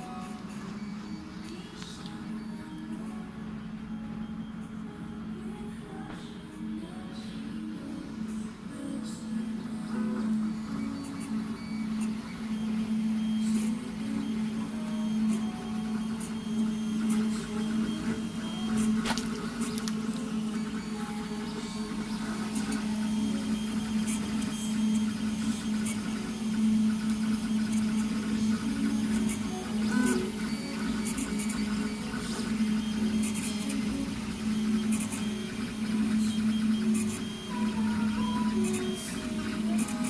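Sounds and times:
printer low hum: 0.0s - 40.0s
stepper motor whine: 10.0s - 40.0s.

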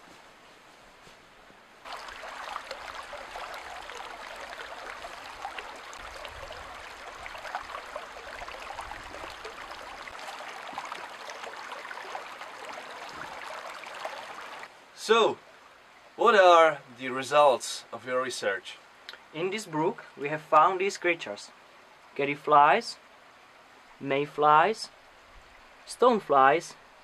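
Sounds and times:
brook babbling over stones: 1.8s - 14.8s.

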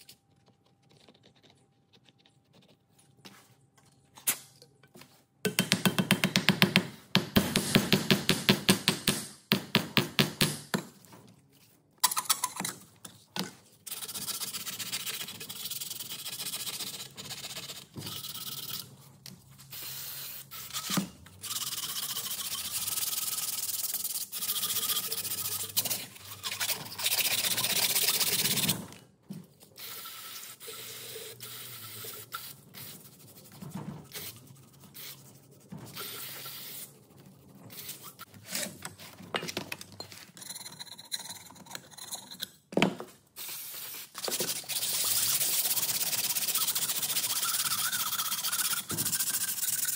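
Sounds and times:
scraping and handling metal: 38.0s - 42.6s.

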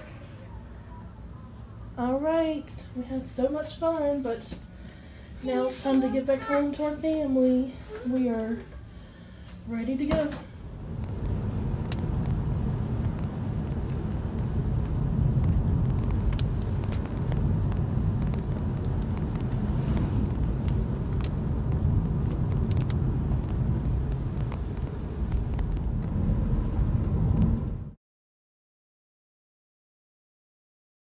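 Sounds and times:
car driving on wet road: 10.8s - 27.9s.

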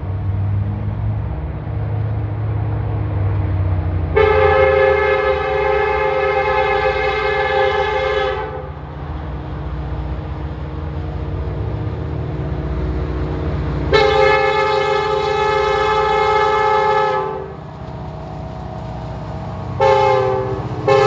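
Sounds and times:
locomotive air horn: 4.1s - 8.8s, 13.9s - 17.6s, 19.8s - 21.0s.

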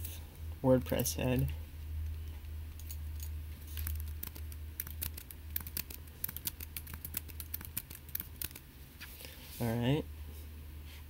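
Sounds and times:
steady low hum: 0.0s - 11.0s
computer keyboard typing: 3.8s - 8.6s.

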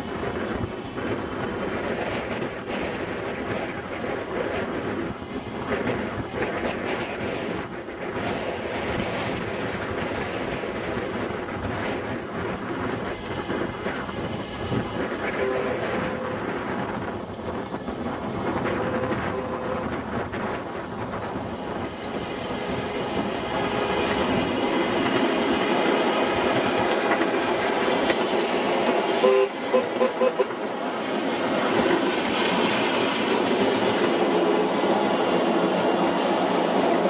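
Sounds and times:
wheels on rail: 0.0s - 37.0s
short train toots: 15.3s - 16.5s, 18.8s - 20.0s, 29.2s - 30.6s.

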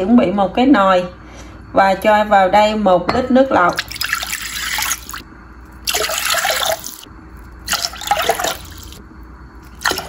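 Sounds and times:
water pouring into a saucepan: 3.8s - 5.2s, 5.8s - 7.0s, 7.6s - 9.0s.

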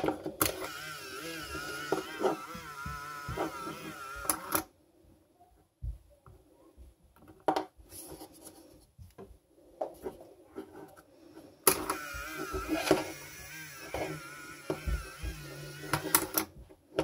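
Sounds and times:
small gear motor whining: 11.7s - 16.5s.

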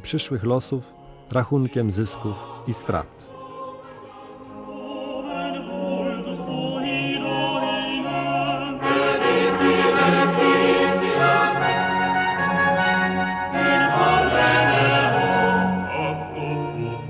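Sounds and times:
choir singing: 1.3s - 17.0s
orchestra playing: 7.9s - 17.0s.

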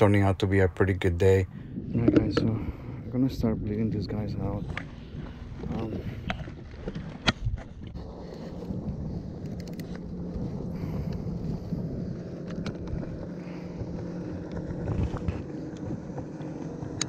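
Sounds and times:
wind rumble on microphone: 0.0s - 17.0s
light clicks of gear handled: 9.3s - 10.0s.

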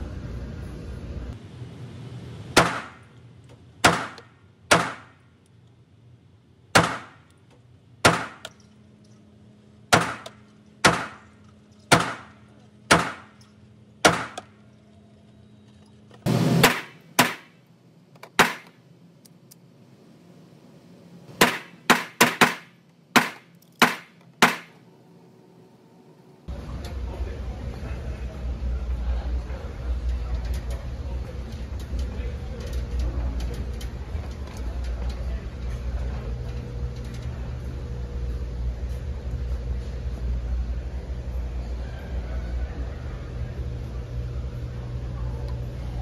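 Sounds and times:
gunshots echoing indoors: 3.8s - 5.3s, 16.3s - 17.6s.

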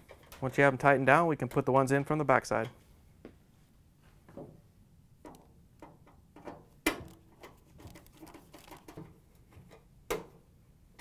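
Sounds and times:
nut driver clicking on sheet metal: 5.2s - 7.6s.

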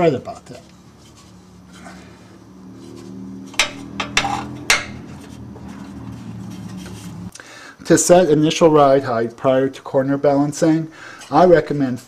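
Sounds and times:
steady low hum: 0.0s - 8.4s.

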